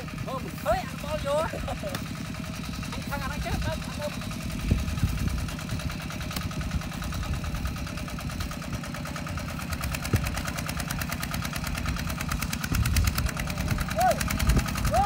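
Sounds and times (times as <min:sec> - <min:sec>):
diesel tractor engine idling: 0:00.0 - 0:15.0.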